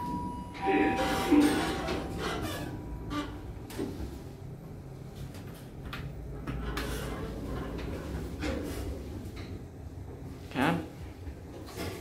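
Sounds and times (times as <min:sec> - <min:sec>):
low steady hum: 0:00.0 - 0:06.6.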